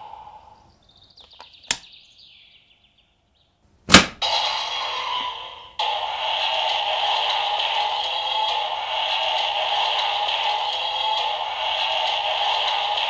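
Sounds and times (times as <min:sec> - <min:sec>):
loud sharp plastic snap: 0:01.3 - 0:01.9, 0:03.9 - 0:04.2.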